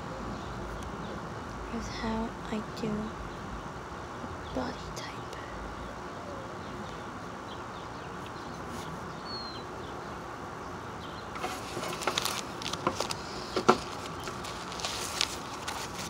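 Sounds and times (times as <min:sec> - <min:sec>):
outdoor ambient hiss: 0:00.0 - 0:16.0
bird chirp: 0:02.6 - 0:12.2.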